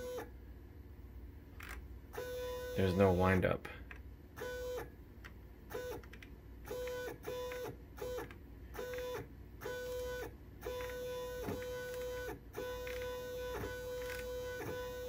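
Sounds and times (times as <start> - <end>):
stepper motor whine: 6.7 - 15.0.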